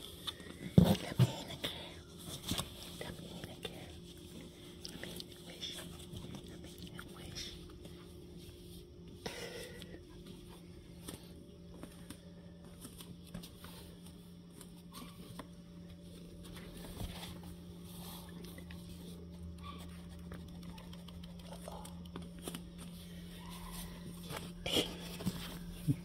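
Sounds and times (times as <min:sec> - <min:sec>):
steady low room hum: 0:00.0 - 0:26.0.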